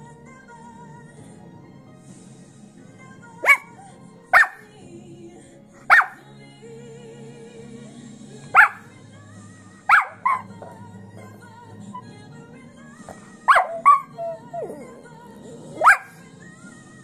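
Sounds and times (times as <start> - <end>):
music playing: 0.0 - 17.0
dog barking: 3.4 - 4.7, 5.8 - 6.2, 8.4 - 8.9, 9.9 - 10.9, 13.4 - 16.2.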